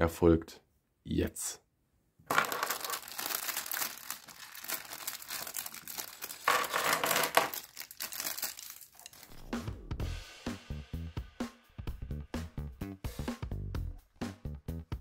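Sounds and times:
plastic bag crinkling: 2.3 - 9.3.

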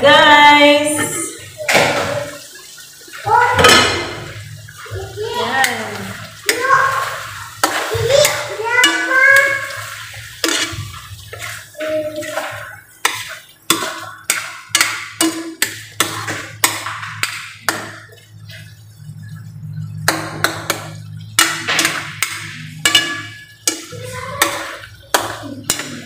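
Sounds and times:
metal spatula scraping wok: 7.2 - 15.4.

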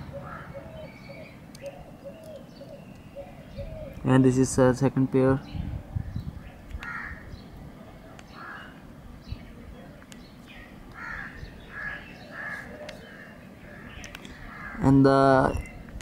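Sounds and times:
birds calling: 0.0 - 16.0.

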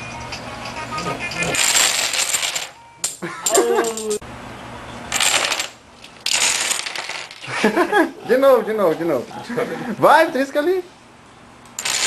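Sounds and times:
dominoes clattering: 1.3 - 2.8, 5.1 - 7.5, 11.8 - 12.0.

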